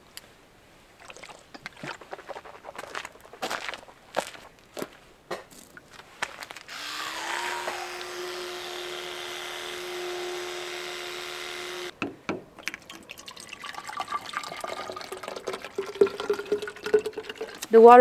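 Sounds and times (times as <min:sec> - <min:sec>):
water pouring into a flask: 0:01.0 - 0:03.0, 0:12.6 - 0:17.7
electric toothbrush buzzing: 0:06.7 - 0:11.9.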